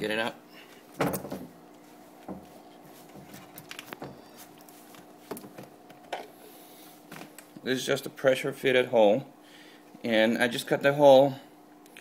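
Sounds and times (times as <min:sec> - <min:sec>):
steady low hum: 0:00.0 - 0:12.0
soft knocks and rubs on plastic: 0:01.1 - 0:05.7.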